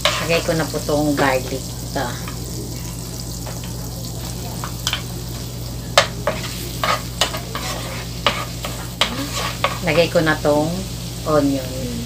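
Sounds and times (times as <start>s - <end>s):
wooden spatula scraping a pan: 0.0s - 1.4s, 6.0s - 10.2s
garlic sizzling in butter: 0.0s - 12.0s.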